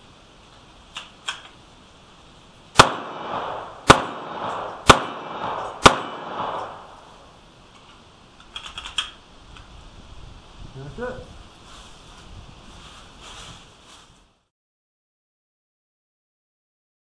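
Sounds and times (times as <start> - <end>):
pistol shots with echo: 2.8 - 7.2.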